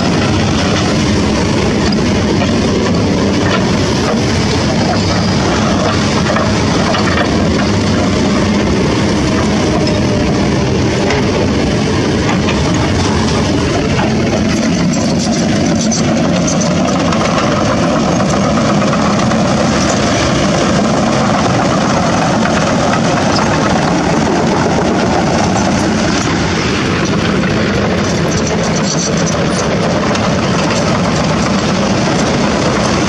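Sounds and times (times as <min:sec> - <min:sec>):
heavy diesel engines running: 0:00.0 - 0:33.0.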